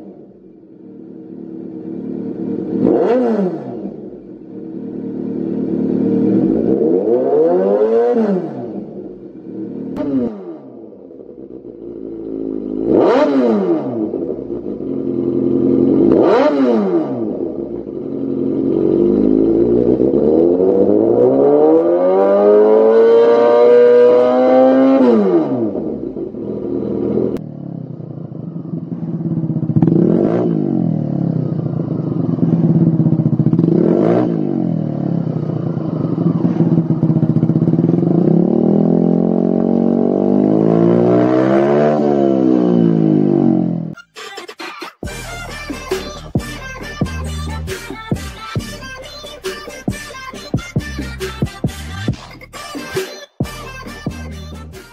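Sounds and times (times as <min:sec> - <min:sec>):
motorcycle engine revving: 0:00.0 - 0:44.0, 0:45.0 - 0:52.8, 0:53.7 - 0:54.9.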